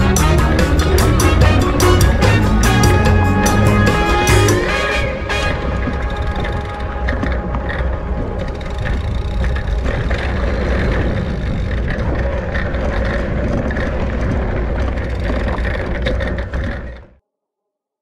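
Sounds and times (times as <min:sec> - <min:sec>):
wind buffeting microphone: 0:00.0 - 0:17.2
tyres rolling over dirt and rocks: 0:05.3 - 0:17.2.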